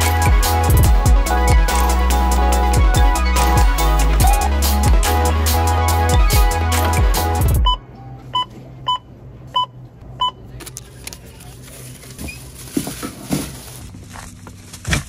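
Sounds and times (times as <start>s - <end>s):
scanner two-tone beeps: 7.6s - 10.4s
plastic bag rustling: 11.1s - 15.0s.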